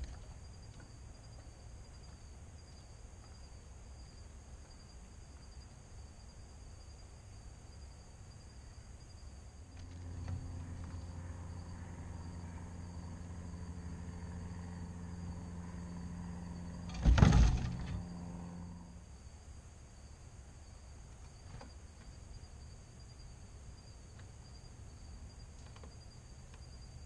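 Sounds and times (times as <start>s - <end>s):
insects trilling: 0.0s - 27.0s
low motor hum: 9.6s - 19.2s
loud thump: 16.9s - 18.2s.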